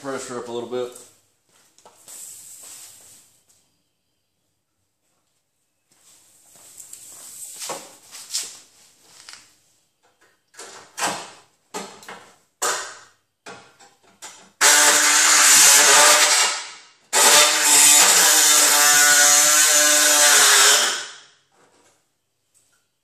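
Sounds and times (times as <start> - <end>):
power tool cutting sheet steel: 14.6 - 21.2.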